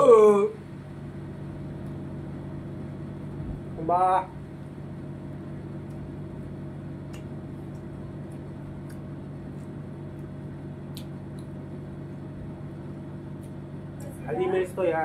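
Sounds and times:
appliance motor hum: 0.0 - 15.0
chewing food clicks: 7.1 - 11.6.

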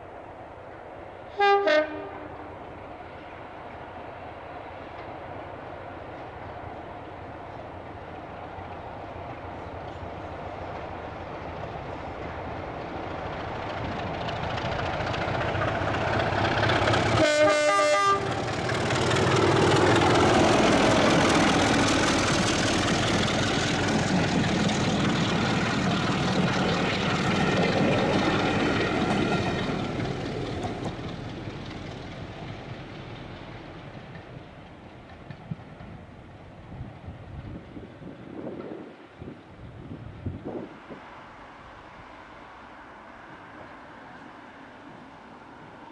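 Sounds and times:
diesel locomotive engine passing: 0.0 - 45.9
train running noise: 0.0 - 45.9
train horn blast: 1.3 - 2.5, 17.2 - 18.4.

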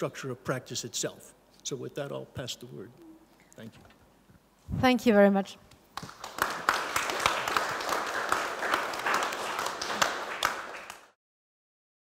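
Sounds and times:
audience applauding: 6.0 - 11.2.

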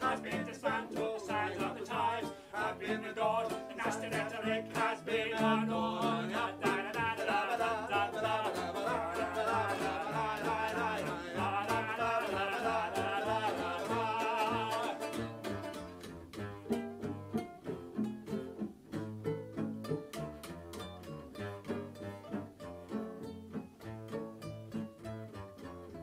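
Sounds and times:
two voices singing: 0.0 - 15.5
banjo ukulele: 0.0 - 26.0
cello: 0.0 - 26.0.

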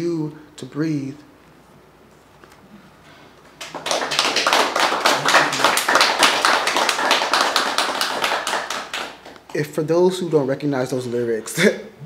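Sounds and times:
audience applauding: 3.6 - 9.4.

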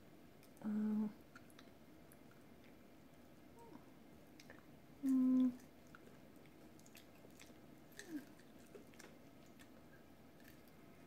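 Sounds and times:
person humming: 0.6 - 1.2, 5.0 - 5.6
chewing and biting food: 5.6 - 10.8.

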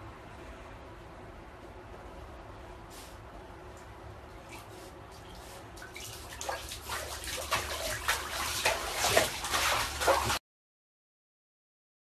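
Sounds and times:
bathwater splashing and sloshing: 4.4 - 10.4.

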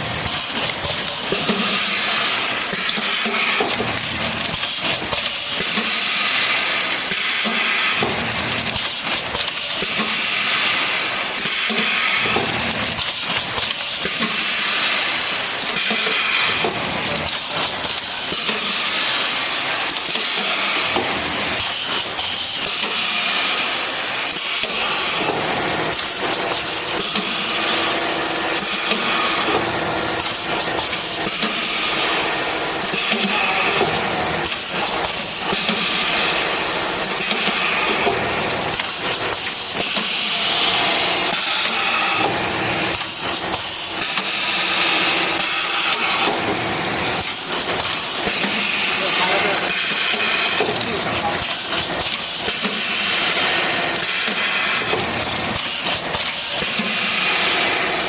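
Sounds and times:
machine clicks and knocks: 0.0 - 2.0, 2.7 - 6.2, 32.8 - 53.4, 54.0 - 58.0
machine hissing: 0.0 - 58.0.

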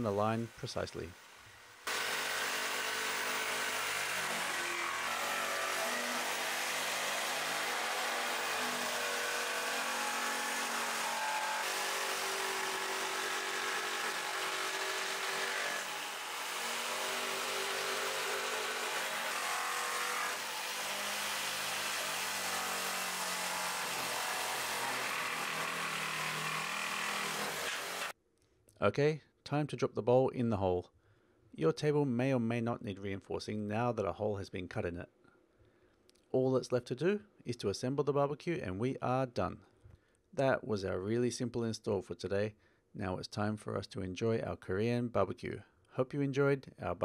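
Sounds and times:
jigsaw cutting wood: 1.8 - 28.2.

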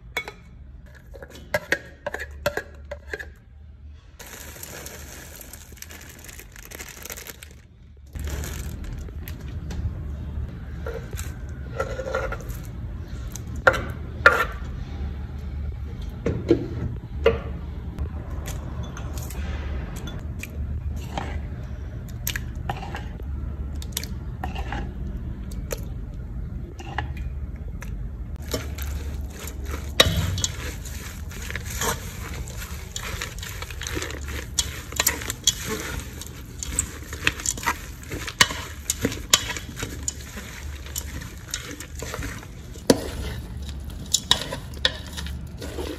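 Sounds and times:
salad being tossed: 28.4 - 43.0
wooden spoon scraping steel bowl: 28.4 - 45.9.

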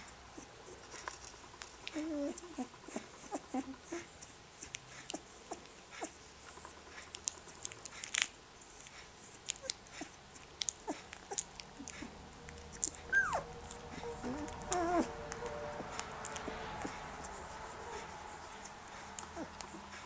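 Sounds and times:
puppies' mouths smacking and clicking: 0.4 - 20.0
puppy squeak: 12.8 - 16.0.

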